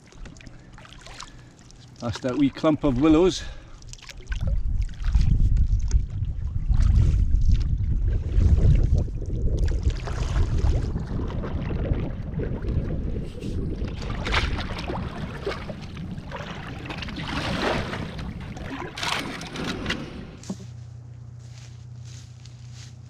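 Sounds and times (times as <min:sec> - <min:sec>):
water lapping at canoe: 0:00.0 - 0:20.6
wind buffeting microphone: 0:04.3 - 0:18.9.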